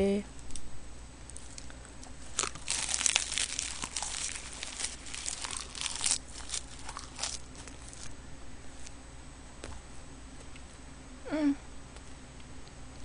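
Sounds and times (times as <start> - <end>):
crisp seaweed crackling when chewed: 1.3 - 8.1.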